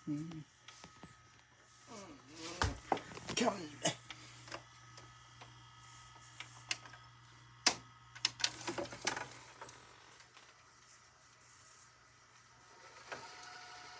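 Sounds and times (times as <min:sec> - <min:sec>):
steady low hum: 0:00.0 - 0:12.8
tape deck clicking: 0:07.6 - 0:09.8.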